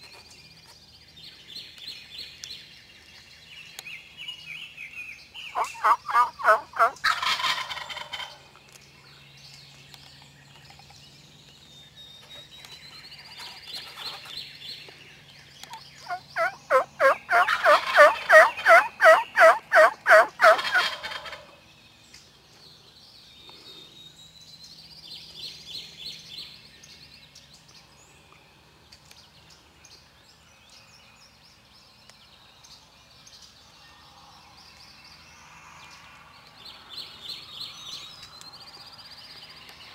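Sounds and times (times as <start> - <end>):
songbirds singing faintly: 0.0 - 39.9
wild turkey calling: 5.5 - 8.4, 15.7 - 21.6.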